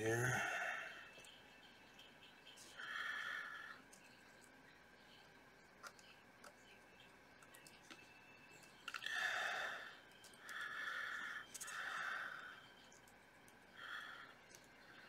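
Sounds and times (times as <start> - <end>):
person breathing: 2.7 - 3.8, 9.0 - 12.7, 13.8 - 15.0.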